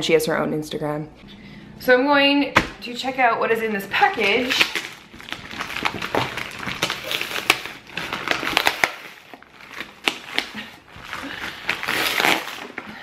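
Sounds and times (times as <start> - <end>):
plastic mailer tearing and crinkling: 4.0 - 13.0.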